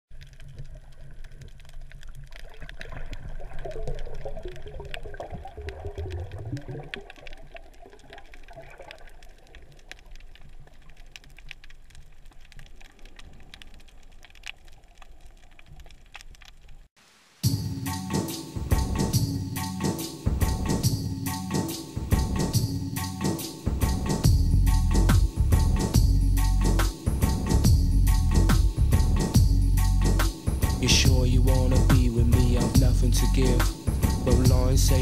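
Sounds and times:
water sloshing underwater: 0.1 - 16.8.

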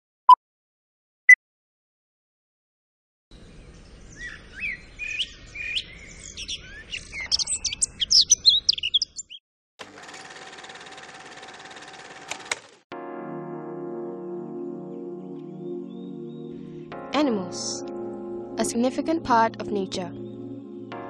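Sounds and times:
birds chirping and singing: 3.3 - 9.4, 15.4 - 16.8.

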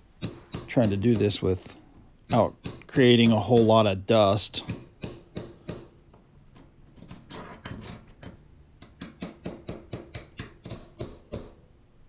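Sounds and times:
hammer striking a pry bar: 0.2 - 1.4, 2.3 - 3.8, 4.6 - 6.0, 7.3 - 11.6.

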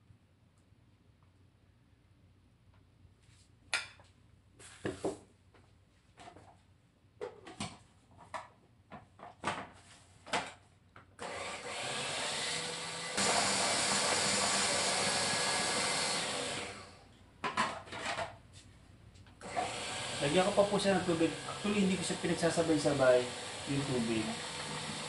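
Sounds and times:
food processor motor running: 11.2 - 17.0, 19.4 - 25.0.

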